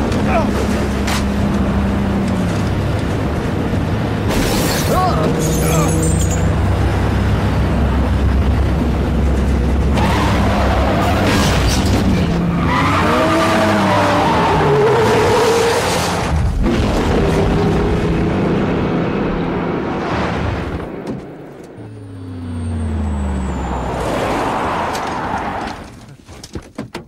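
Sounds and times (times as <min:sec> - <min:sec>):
tyres skidding and squealing: 0:00.0 - 0:03.2, 0:04.1 - 0:08.2, 0:09.3 - 0:16.4, 0:20.0 - 0:26.4
vehicles rumbling at highway speed: 0:00.0 - 0:26.2.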